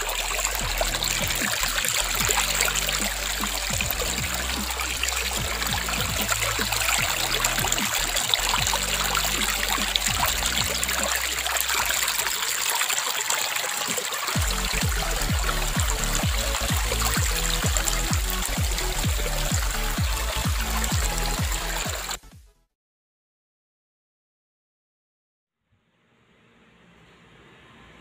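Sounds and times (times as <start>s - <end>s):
low electronic music notes: 0.0s - 12.0s, 14.4s - 22.3s
trickling running water: 0.0s - 22.2s
deep falling bass hits: 0.1s - 11.4s.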